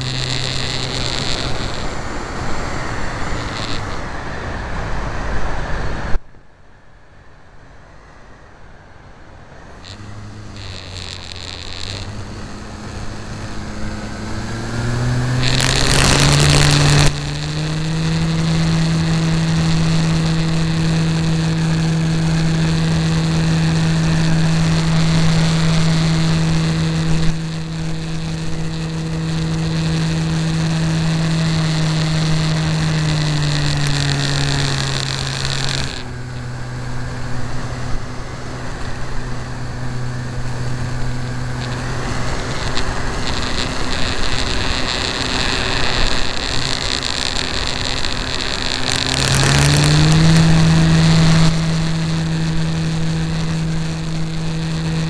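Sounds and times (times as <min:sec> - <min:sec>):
model aircraft engine running: 0:00.0 - 0:05.8, 0:09.5 - 0:55.0
loud rush of noise: 0:00.0 - 0:55.0.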